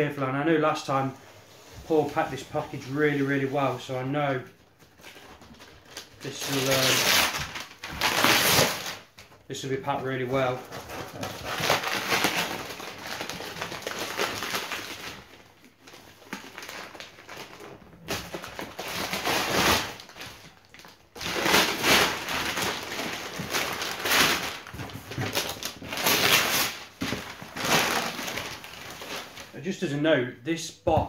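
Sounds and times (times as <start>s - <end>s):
paper ripping and rustling: 5.0s - 9.3s, 10.4s - 29.6s.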